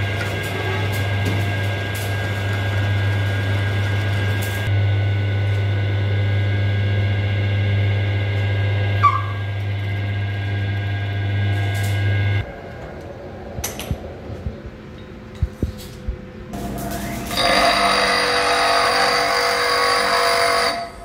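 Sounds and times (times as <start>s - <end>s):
high whine: 0.0s - 21.0s
short squeak: 9.0s - 9.4s
metal lathe motor humming: 16.6s - 21.0s.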